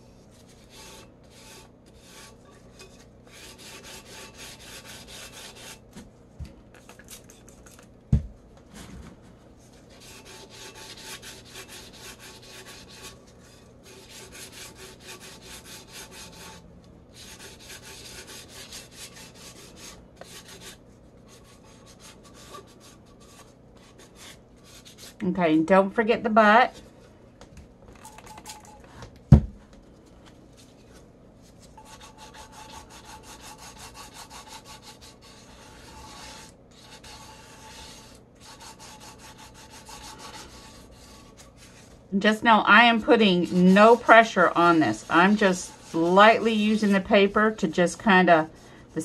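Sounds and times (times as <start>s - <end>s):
sandpaper rubbing: 10.0s - 13.2s, 31.8s - 41.9s.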